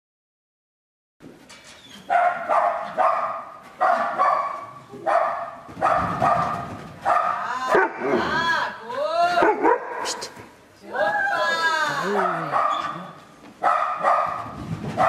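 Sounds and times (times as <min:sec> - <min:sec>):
dog barking: 0:02.1 - 0:08.2, 0:09.4 - 0:10.3, 0:12.0 - 0:15.0.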